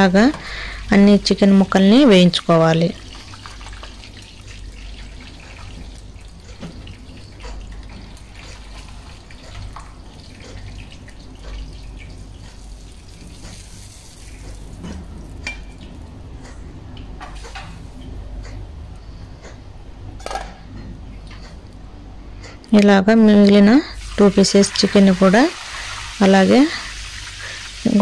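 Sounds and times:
chicken sizzling in oil: 2.9s - 16.0s, 24.0s - 28.0s.

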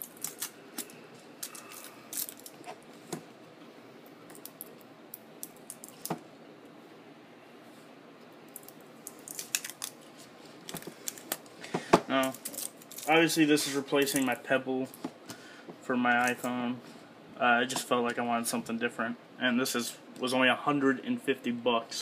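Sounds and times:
paper wrap rustling: 12.1s - 14.4s.

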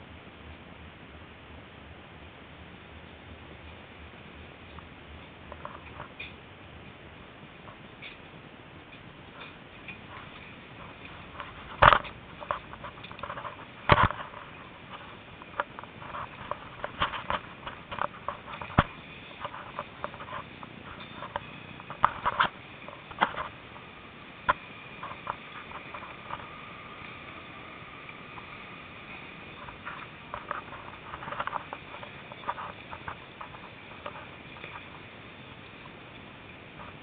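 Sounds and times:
faint steady whine: 0.0s - 37.0s
phone being handled: 11.0s - 23.6s.

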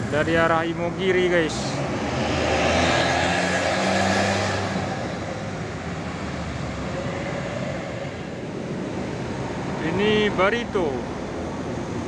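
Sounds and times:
motorbikes passing: 0.0s - 12.0s
traffic noise: 0.0s - 12.0s
bus engine running: 4.6s - 12.0s.

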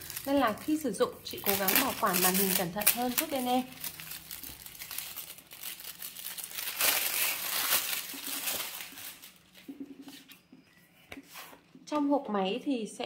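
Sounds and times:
plastic shrink-wrap crinkling: 0.0s - 10.4s.

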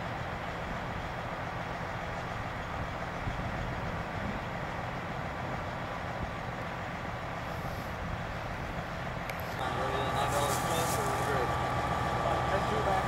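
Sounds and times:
bus diesel engine idling: 0.0s - 13.0s.

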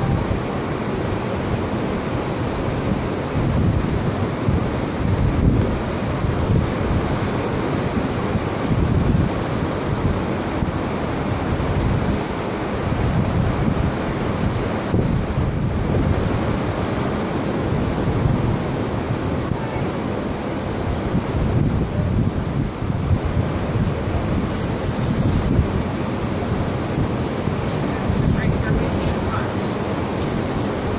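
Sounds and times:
surf: 0.0s - 30.9s
wind buffeting microphone: 0.0s - 30.9s.

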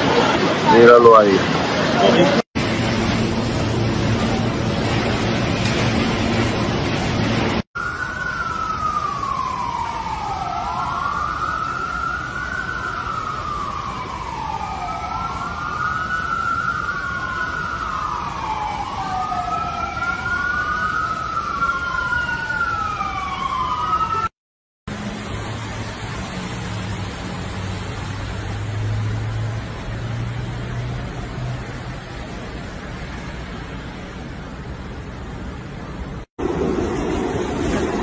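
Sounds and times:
water rushing from floor drain: 0.0s - 24.1s, 36.4s - 38.0s
wailing siren: 2.7s - 24.4s
second siren: 2.9s - 24.4s
rain hiss: 24.9s - 34.6s.

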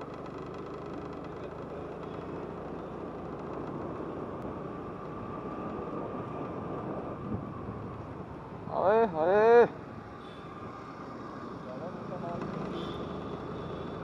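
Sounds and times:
motorcycle engine running: 0.0s - 4.2s
road and wind noise: 0.0s - 14.0s.

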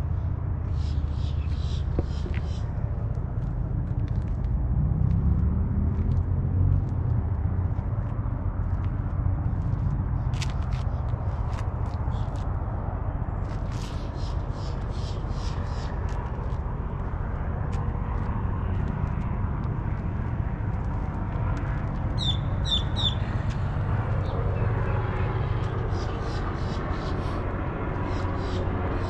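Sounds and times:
low rumble of vehicles: 0.0s - 29.0s
small bird chirping: 22.2s - 23.2s.

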